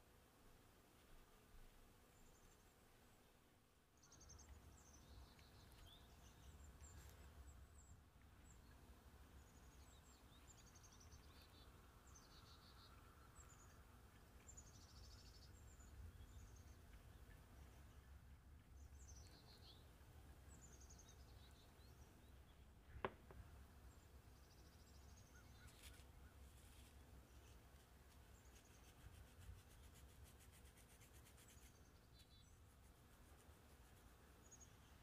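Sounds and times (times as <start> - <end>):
faint high bird chirps: 4.0 - 23.0, 23.9 - 26.5.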